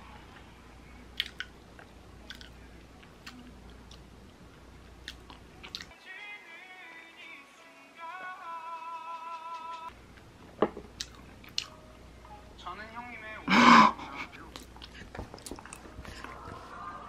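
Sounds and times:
person biting and chewing: 0:01.2 - 0:01.5, 0:02.3 - 0:02.6.

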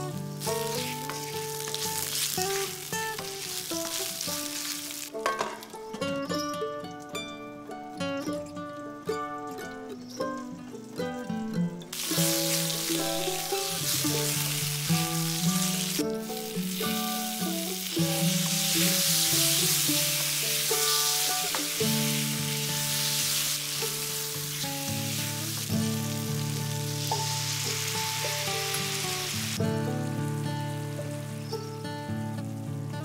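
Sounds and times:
potatoes sizzling in hot oil: 0:00.0 - 0:05.8, 0:11.9 - 0:33.0
wooden spatula stirring in pan: 0:00.4 - 0:05.1.

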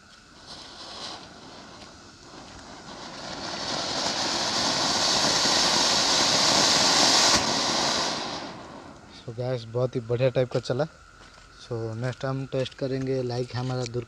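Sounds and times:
firework fountain hissing: 0:00.0 - 0:10.2.

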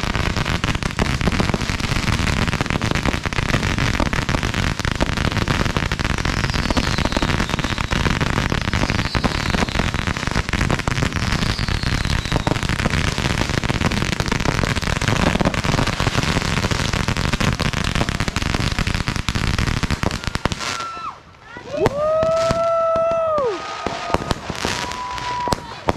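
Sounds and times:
fireworks crackling and bursting: 0:00.0 - 0:25.9
faint falling firework whistles: 0:06.3 - 0:08.0, 0:08.7 - 0:09.8, 0:11.2 - 0:12.6, 0:20.0 - 0:25.7.

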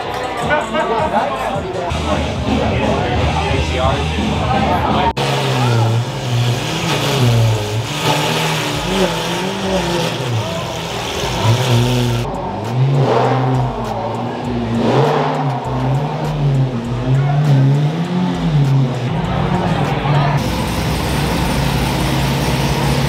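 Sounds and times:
sports car engine revving: 0:01.9 - 0:23.0.

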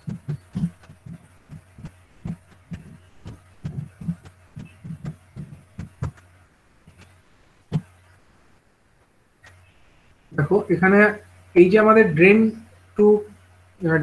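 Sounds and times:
computer keyboard typing: 0:00.0 - 0:06.3.

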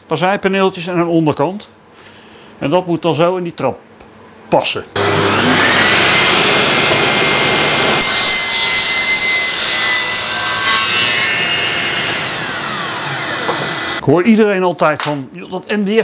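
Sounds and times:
table saw cutting panel: 0:05.0 - 0:14.0.

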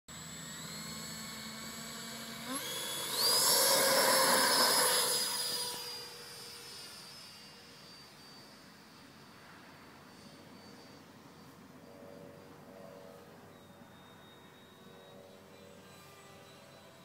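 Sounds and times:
model jet fan whining: 0:00.1 - 0:17.0.

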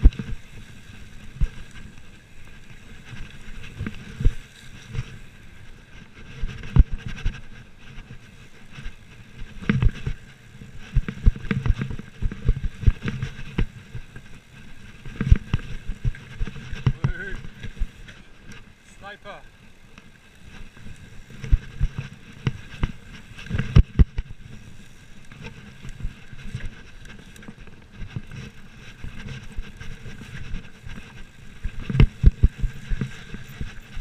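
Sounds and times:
steady rushing noise: 0:00.0 - 0:34.0
bike knocks and rattles: 0:05.9 - 0:18.8, 0:20.4 - 0:34.0.

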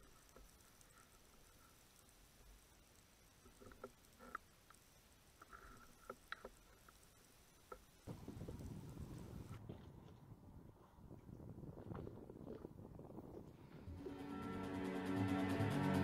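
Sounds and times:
steady rushing noise: 0:13.8 - 0:16.0.

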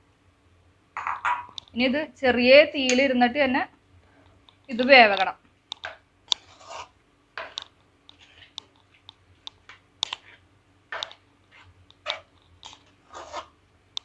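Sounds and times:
spoon scraping metal pan: 0:06.4 - 0:08.6, 0:11.0 - 0:13.6.

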